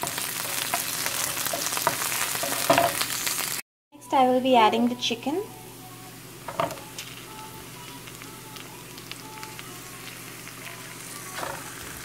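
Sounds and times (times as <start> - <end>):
oil sizzling in frying pan: 0.0 - 3.6, 7.8 - 12.0.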